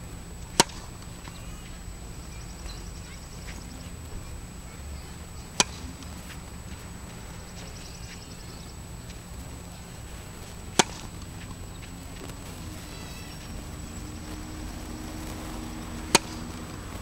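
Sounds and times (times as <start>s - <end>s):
sharp pops: 0.5s - 1.4s, 5.5s - 6.4s, 10.1s - 17.0s
tennis racket striking ball: 0.5s - 1.4s, 5.5s - 6.4s, 10.5s - 12.4s, 16.1s - 17.0s.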